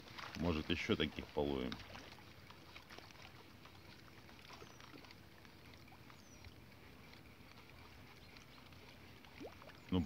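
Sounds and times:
water lapping against boat hull: 0:00.0 - 0:10.0
small ticks: 0:02.5 - 0:10.0.

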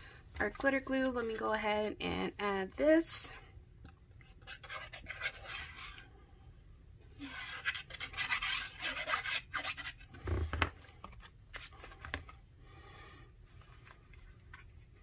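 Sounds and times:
plastic tip scratching on paper: 0:04.2 - 0:06.0, 0:07.2 - 0:10.4.

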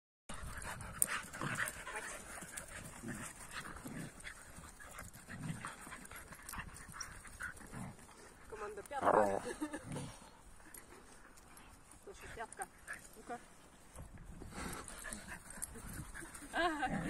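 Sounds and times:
dogs growling: 0:00.3 - 0:11.6, 0:14.4 - 0:17.0
dogs panting: 0:00.3 - 0:17.0.

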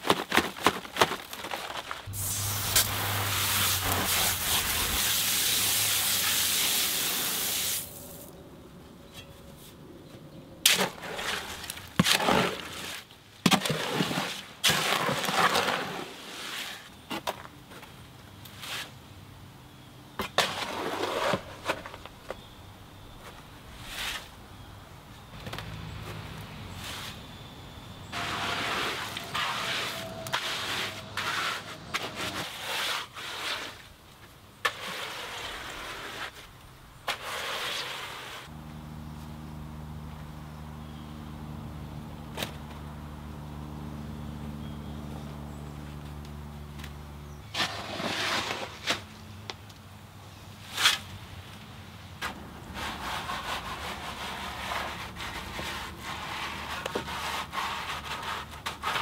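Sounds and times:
tool scraping wet concrete: 0:02.1 - 0:06.8, 0:10.7 - 0:16.8, 0:20.4 - 0:21.8, 0:28.2 - 0:33.9, 0:34.6 - 0:36.4, 0:37.0 - 0:38.5, 0:47.5 - 0:49.0, 0:52.2 - 0:59.0.

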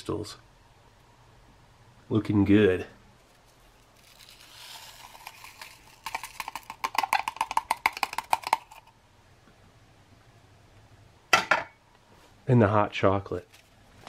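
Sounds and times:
coffee crystals pouring from packet: 0:03.4 - 0:08.7.

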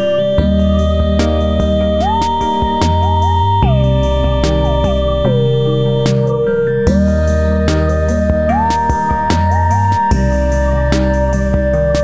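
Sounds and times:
low bass line: 0:00.0 - 0:12.0
synthesizer lead: 0:00.0 - 0:12.0.

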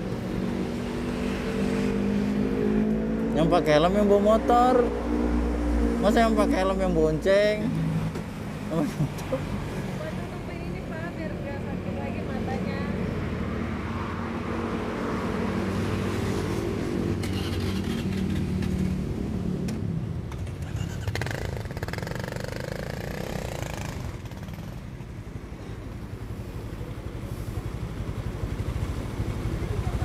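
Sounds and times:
vehicle passing by: 0:00.0 - 0:19.6
street traffic: 0:00.0 - 0:30.0
motorcycle engine idling: 0:24.8 - 0:30.0.

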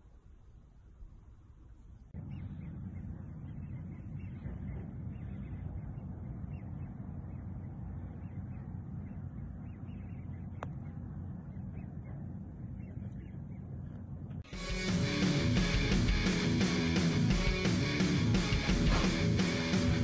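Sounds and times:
wind buffeting microphone: 0:01.0 - 0:14.5
golf club striking ball: 0:18.7 - 0:19.2.

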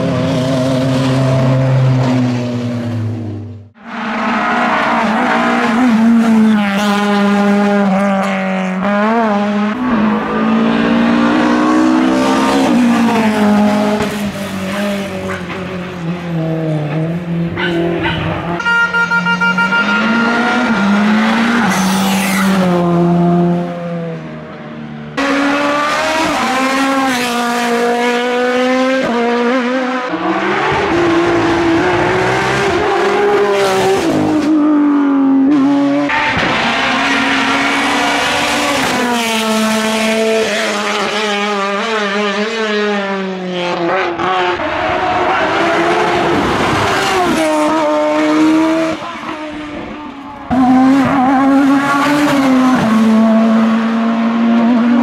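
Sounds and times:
race car engines revving: 0:00.0 - 0:55.0.

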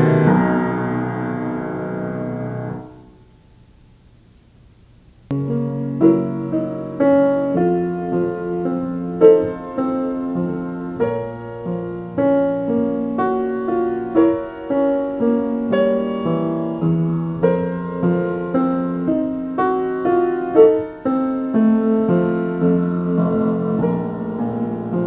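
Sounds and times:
piano music: 0:00.0 - 0:03.3, 0:05.3 - 0:25.0.

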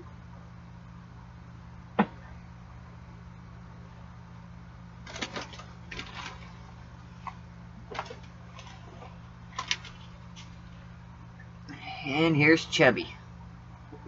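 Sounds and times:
steady low hum: 0:00.0 - 0:14.0
handling clicks and rustles: 0:05.0 - 0:10.6.

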